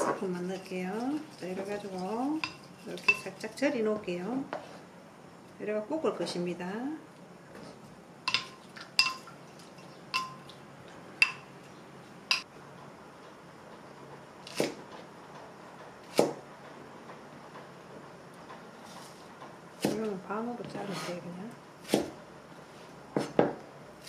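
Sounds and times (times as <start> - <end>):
wooden spoon knocking glass bowl: 8.3 - 9.2, 10.1 - 10.4, 11.2 - 11.5
knife chopping on plastic board: 16.1 - 16.4, 21.8 - 22.2.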